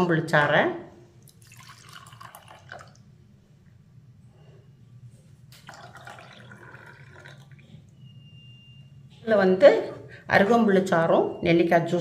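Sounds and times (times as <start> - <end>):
faint low hum: 0.0 - 12.0
liquid pouring into glasses: 1.2 - 3.2, 5.6 - 8.0.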